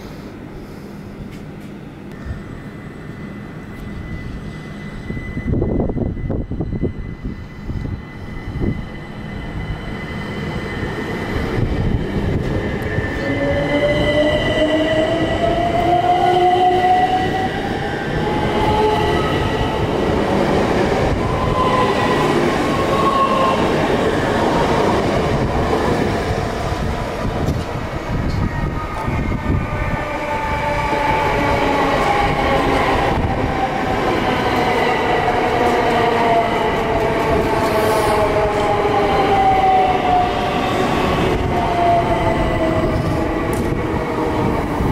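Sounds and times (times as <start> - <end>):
wheels rumbling on rail: 24.5 - 33.9, 41.2 - 44.9.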